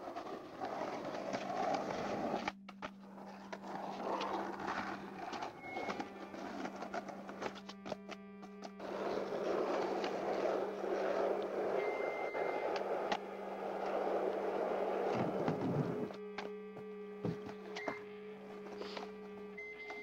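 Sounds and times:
skateboard wheels on rough asphalt: 0:00.0 - 0:20.0.

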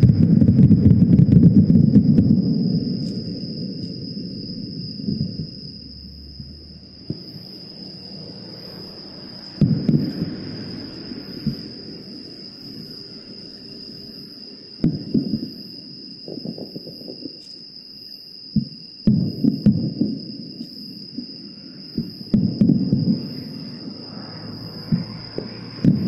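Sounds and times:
distant fireworks booms: 0:00.0 - 0:13.0, 0:13.8 - 0:17.6, 0:18.5 - 0:26.0
night insects trilling: 0:00.0 - 0:26.0.

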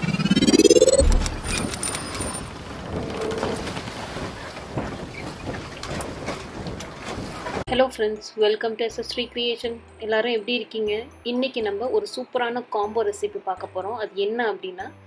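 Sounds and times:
rising whoosh: 0:00.0 - 0:02.0
scattered clicks: 0:00.7 - 0:02.5.

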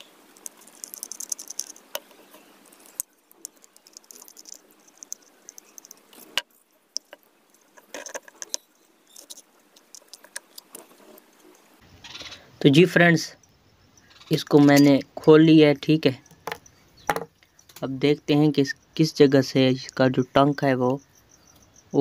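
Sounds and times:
screwdriver clicking on metal screws: 0:00.0 - 0:11.6.

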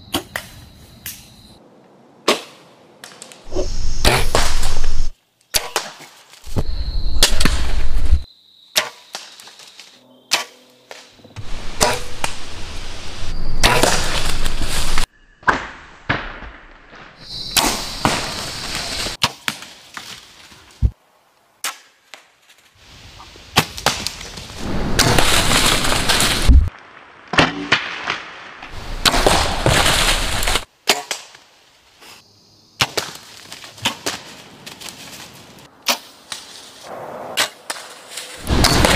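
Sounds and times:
noisy rushing: 0:24.6 - 0:26.7.

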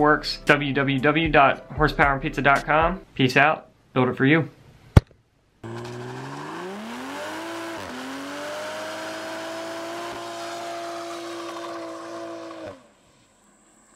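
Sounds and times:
tyres spinning: 0:05.6 - 0:12.8
car engine revving: 0:05.6 - 0:13.9.

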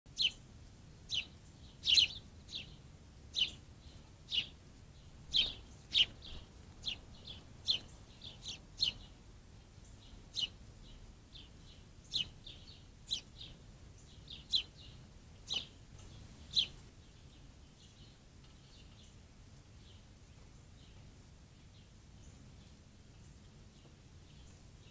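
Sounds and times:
songbird chirping: 0:00.1 - 0:24.9.

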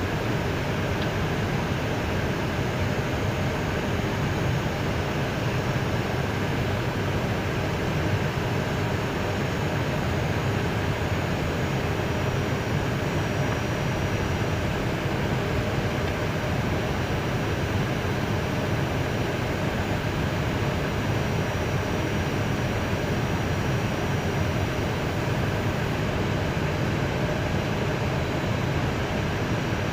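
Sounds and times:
aircraft cockpit rumble and hiss: 0:00.0 - 0:29.9.

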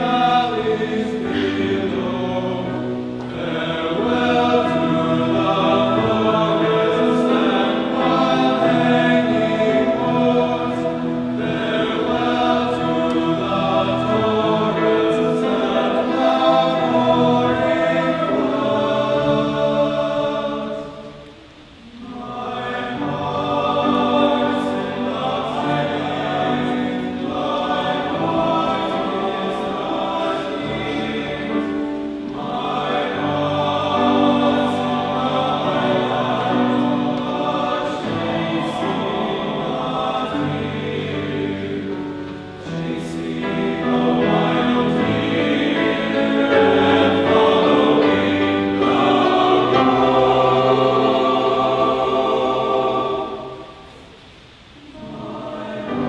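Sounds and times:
boys' choir singing: 0:00.0 - 0:56.0.

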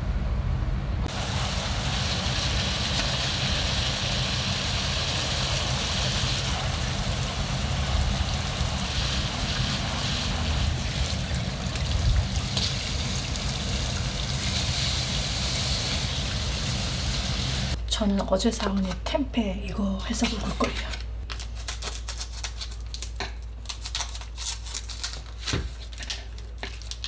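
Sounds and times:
low rumble: 0:00.0 - 0:17.8
garden hose spraying: 0:01.1 - 0:17.8.

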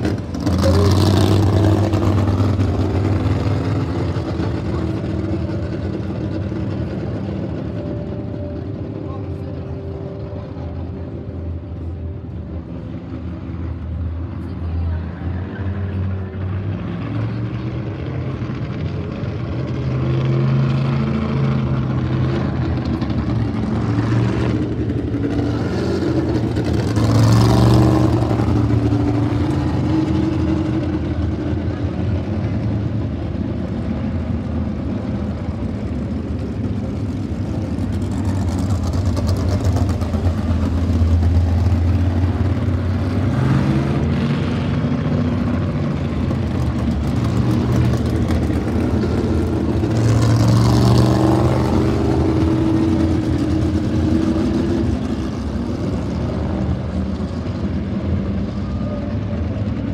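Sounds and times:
race car engines passing: 0:00.0 - 0:59.9.

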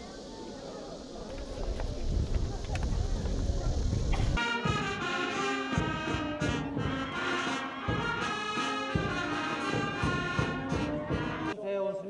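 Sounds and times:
brass band playing a melody: 0:04.4 - 0:11.6.

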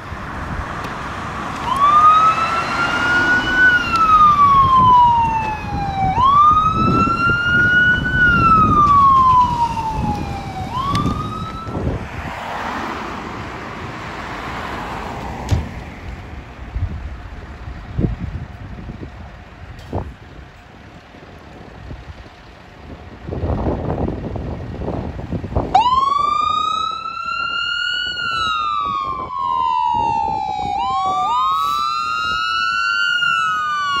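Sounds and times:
fire engine siren wailing: 0:00.0 - 0:13.2, 0:23.2 - 0:34.0
truck engine and road rumble: 0:00.0 - 0:34.0.

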